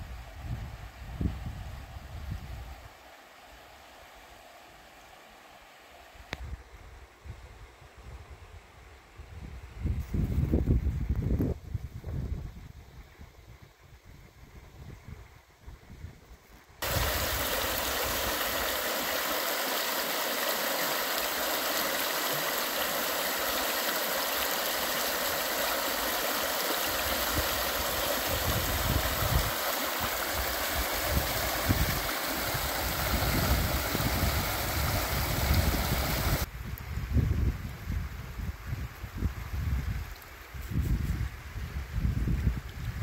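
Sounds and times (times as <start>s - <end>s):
wind rumbling on microphone: 0.0s - 2.9s, 6.3s - 19.2s, 24.7s - 43.0s
river water rushing over rocks: 16.8s - 36.5s.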